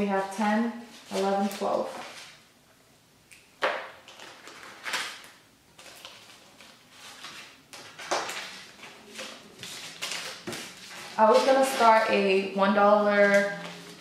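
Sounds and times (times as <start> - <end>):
paper and plastic rustling: 0.9 - 2.4, 4.0 - 14.0.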